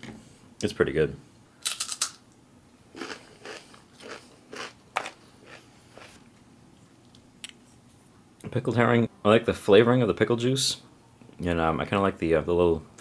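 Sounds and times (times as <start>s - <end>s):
chewing crunchy crispbread: 2.9s - 6.2s.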